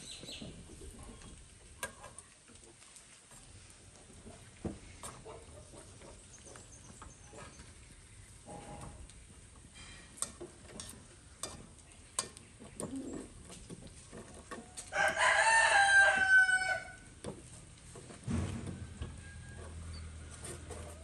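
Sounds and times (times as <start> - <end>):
tongs clicking on a wok: 9.8 - 12.6
rooster crowing: 14.9 - 17.0, 18.7 - 21.0.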